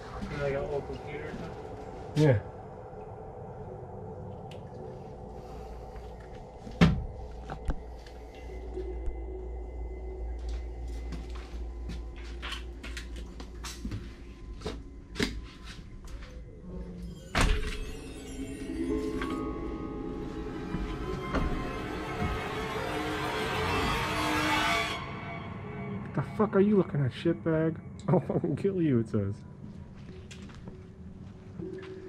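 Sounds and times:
footsteps on debris-strewn floor: 10.4 - 16.3, 29.6 - 32.0.

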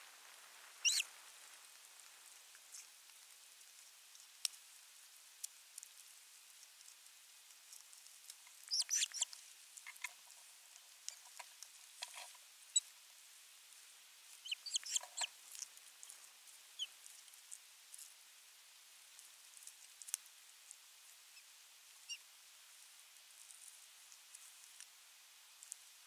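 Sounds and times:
ospreys chirping: 0.8 - 1.1, 8.6 - 10.1, 14.4 - 15.3.

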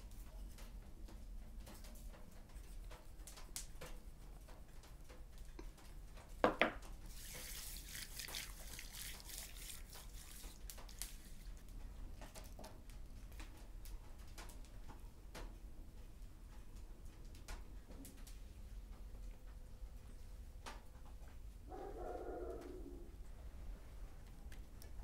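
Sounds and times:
wet smearing and rasping: 7.0 - 12.5.

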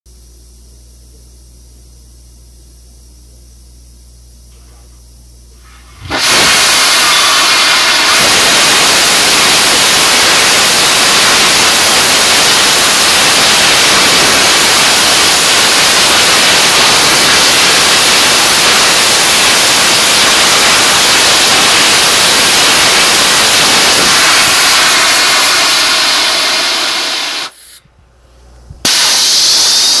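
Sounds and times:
rocket thruster exhaust hiss: 5.6 - 27.9, 28.8 - 30.0.

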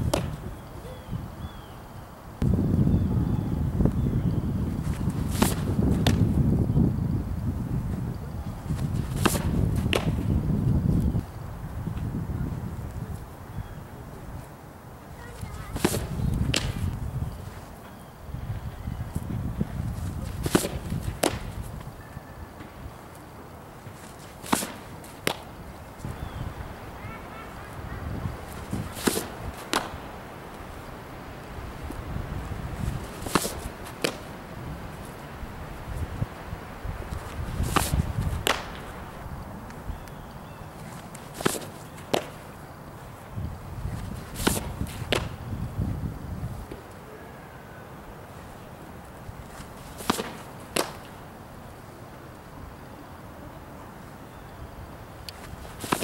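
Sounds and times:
ball smacking into leather glove: 0.1 - 0.4, 5.0 - 6.3, 8.8 - 10.3, 15.7 - 16.9, 20.2 - 21.6, 23.8 - 25.5, 28.5 - 30.1, 33.0 - 34.3, 37.1 - 39.0, 40.9 - 42.5, 44.0 - 45.4, 49.6 - 51.2, 55.3 - 56.0.

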